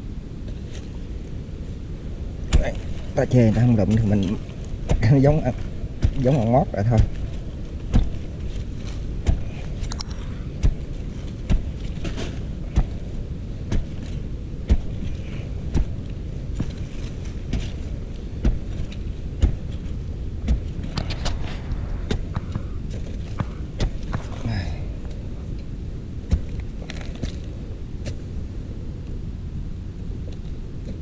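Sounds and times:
steady low rumble: 0.0s - 31.0s
machete chopping into soil: 2.5s - 24.7s, 26.2s - 27.4s, 28.0s - 28.2s.

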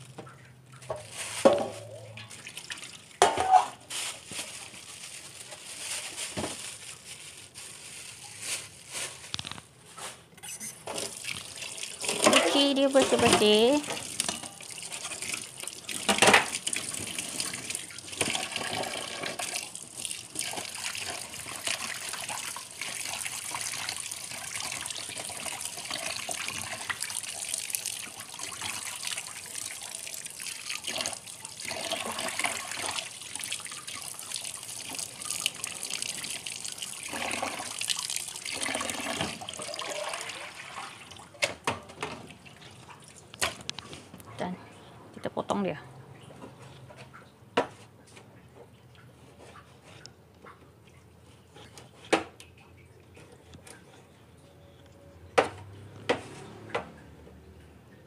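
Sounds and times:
hands washing food in water: 0.0s - 9.2s, 9.8s - 44.4s, 55.5s - 58.0s
tap water running into sink: 10.9s - 42.3s.

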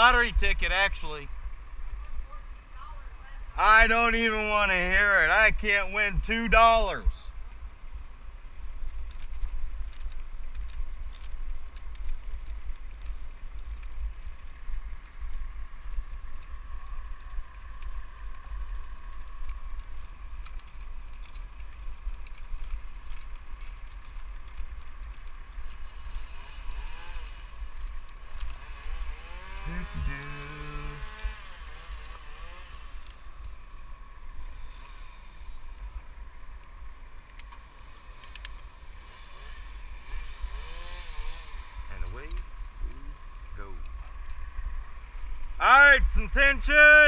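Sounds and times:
climbing hardware clinking: 8.8s - 33.6s.

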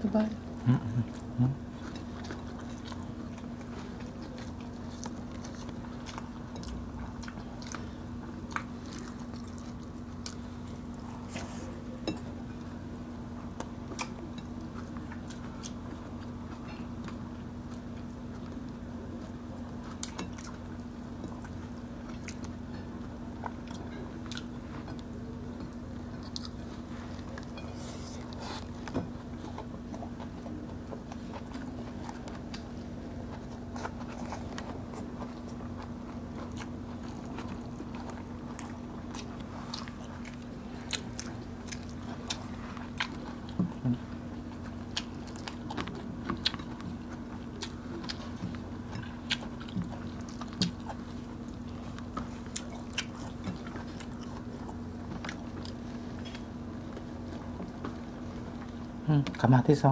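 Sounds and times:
people chewing: 0.0s - 59.9s.

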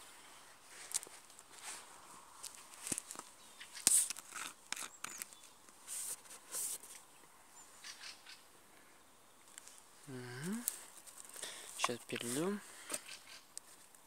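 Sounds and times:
plastic bottle crackling: 2.4s - 7.0s, 10.4s - 13.0s.

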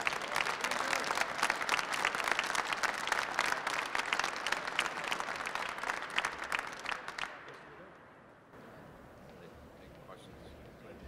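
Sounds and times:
people clapping: 0.0s - 8.1s.

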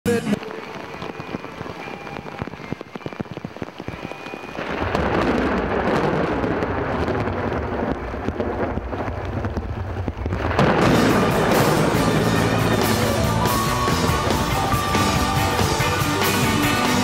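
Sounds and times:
heavy rain downpour: 0.1s - 17.0s
low rumble of thunder: 4.6s - 13.4s.

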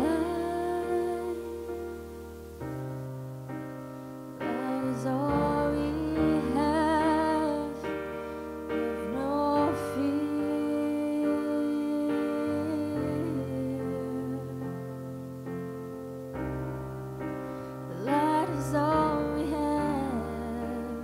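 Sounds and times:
woman singing with vibrato: 0.0s - 2.3s, 4.4s - 15.0s, 17.9s - 21.0s
piano chords: 0.0s - 21.0s.

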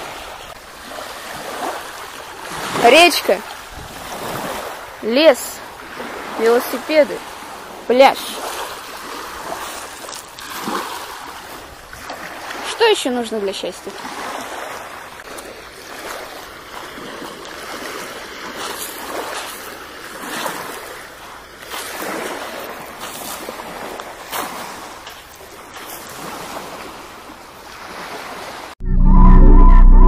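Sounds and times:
river water rushing: 0.0s - 28.8s
footsteps crunching on pebbles: 18.6s - 19.8s.

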